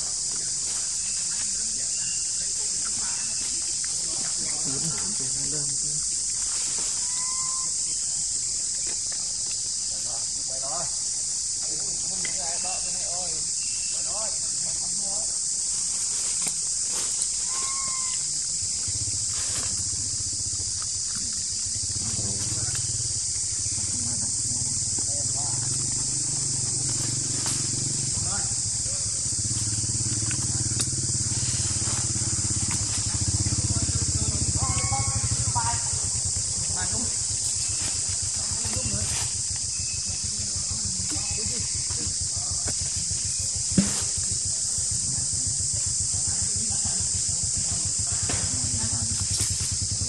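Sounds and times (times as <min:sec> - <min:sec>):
high-pitched insect chorus: 0:00.0 - 0:50.0
short wavering calls: 0:06.8 - 0:08.1, 0:17.2 - 0:20.6, 0:25.5 - 0:39.0
engine running steadily: 0:18.6 - 0:50.0.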